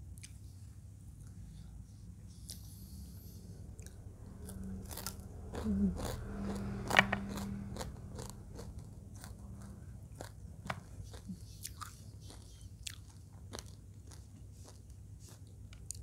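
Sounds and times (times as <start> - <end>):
chewing and crunching food: 3.8 - 16.0.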